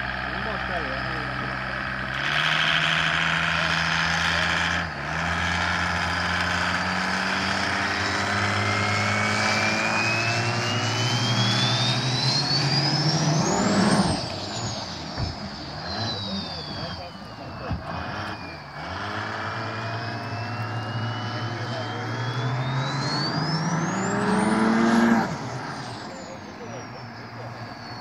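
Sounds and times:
speedboat diesel engine at full throttle: 0.0s - 28.0s
high turbo whistle: 6.4s - 28.0s.

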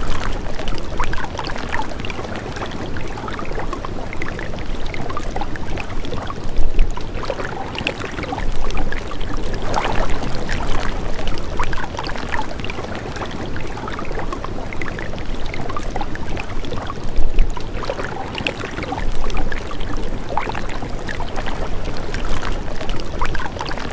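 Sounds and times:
running water gurgling: 0.0s - 23.9s.

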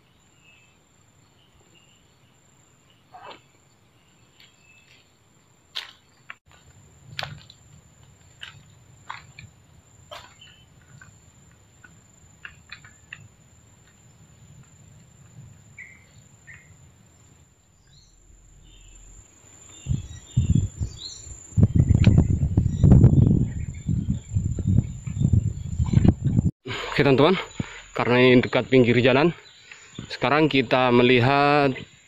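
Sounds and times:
high insect drone: 6.8s - 25.9s
bird chirps: 10.1s - 11.1s, 15.8s - 26.4s.

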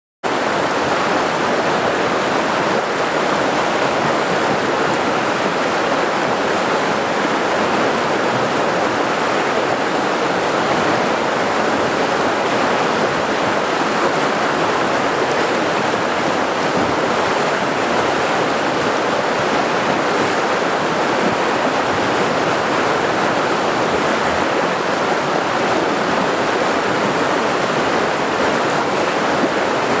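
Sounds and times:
water rushing over boulders: 0.3s - 30.0s.

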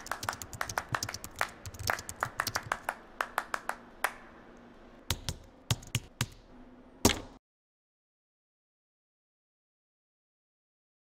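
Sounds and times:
computer keyboard typing: 0.0s - 2.9s.

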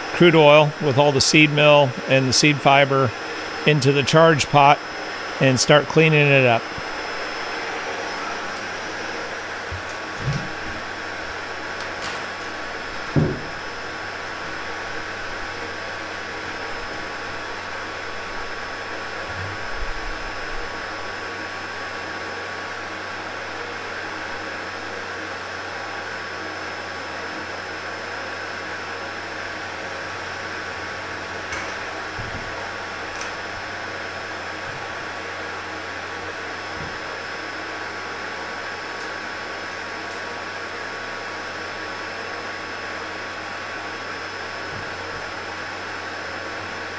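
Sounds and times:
centrifuge whirring hum: 0.0s - 46.9s
dull knocks: 13.1s - 13.6s
thump: 13.2s - 13.6s.

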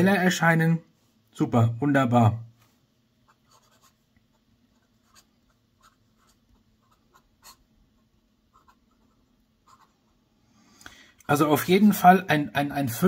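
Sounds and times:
fountain pen scratching on paper: 3.3s - 10.1s.

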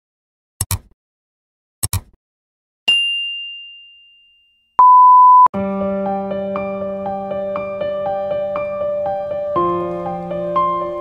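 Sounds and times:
mouse clicks: 1.8s - 2.2s
bright bell ding: 2.9s - 4.7s
short steady beep: 4.8s - 5.5s
piano music: 5.6s - 11.0s.

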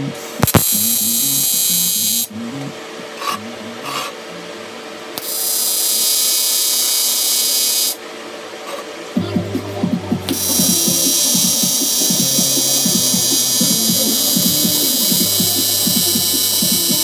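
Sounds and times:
welding arc buzzing hiss: 0.0s - 2.3s, 5.1s - 8.0s, 10.2s - 17.0s
background music: 9.2s - 17.0s.

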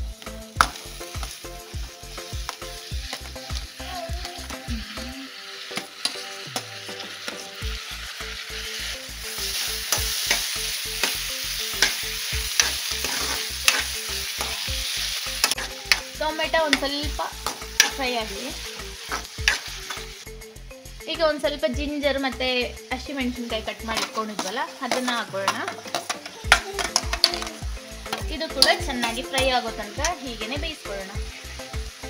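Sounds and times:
onions sizzling in oil: 0.0s - 32.0s
metal ladle scraping pan: 5.6s - 7.8s, 8.6s - 20.2s, 23.6s - 30.2s.

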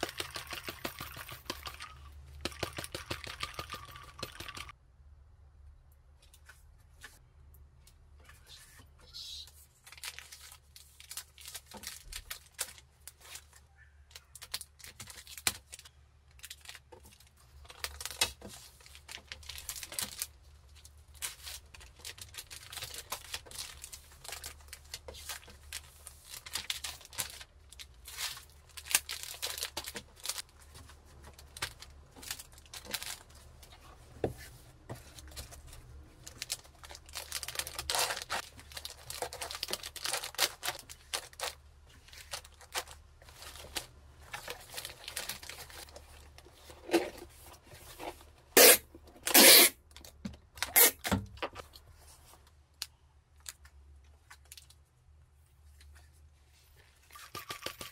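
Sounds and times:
plastic bag crinkling: 18.8s - 33.7s, 35.2s - 47.0s.

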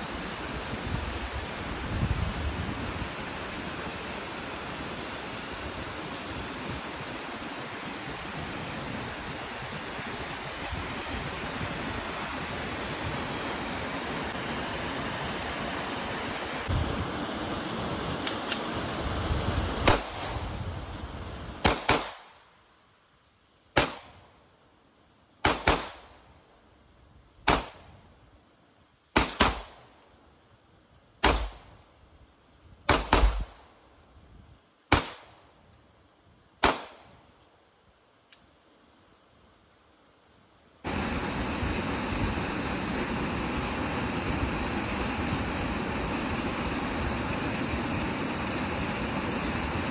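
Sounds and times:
creek rushing: 0.0s - 21.6s, 40.8s - 49.9s.

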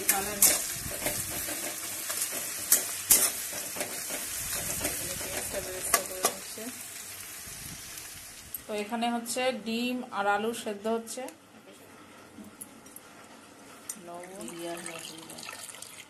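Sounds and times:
metal spatula scraping pan: 0.0s - 6.4s
onions sizzling in oil: 0.0s - 9.4s.

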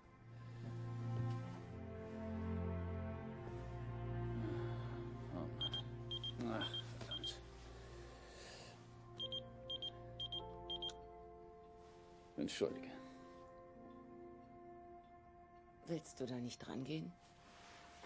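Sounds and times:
soft background music: 0.0s - 18.0s
mobile phone beeping: 5.6s - 7.3s, 9.2s - 10.9s.

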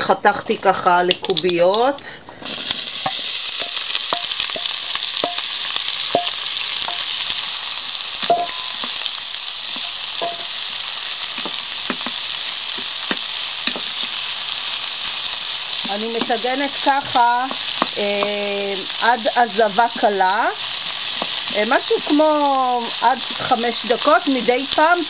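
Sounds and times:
onions sizzling in oil: 1.1s - 25.0s
wooden spoon knocking a pan: 3.0s - 7.3s, 8.1s - 9.1s, 9.7s - 14.2s, 15.8s - 18.4s.

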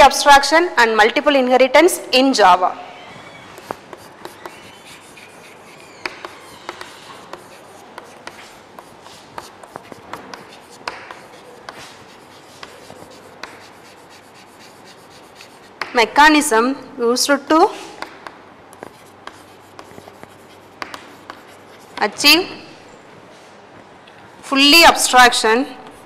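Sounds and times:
chalk tapping and scratching: 3.6s - 16.0s, 18.0s - 22.2s, 25.8s - 26.0s.

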